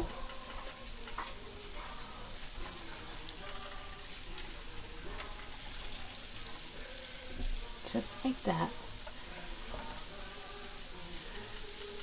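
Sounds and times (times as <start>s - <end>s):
potstickers sizzling in hot oil: 0.0s - 12.0s
thin high whistle: 1.9s - 5.4s.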